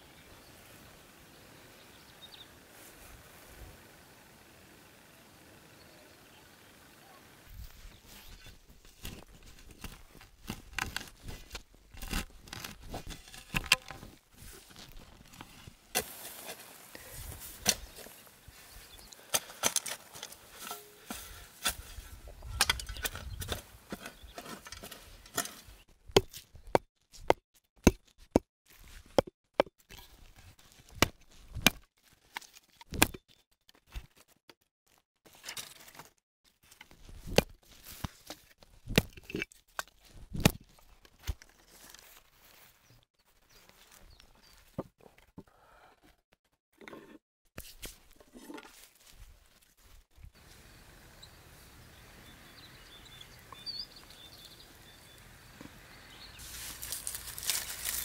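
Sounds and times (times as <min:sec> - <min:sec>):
spade cutting into turf: 0:15.9 - 0:18.1.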